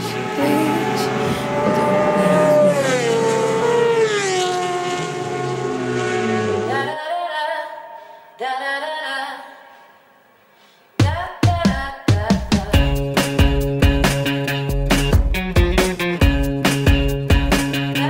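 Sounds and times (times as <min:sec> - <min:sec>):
racing motorcycles passing by: 0:00.0 - 0:07.0.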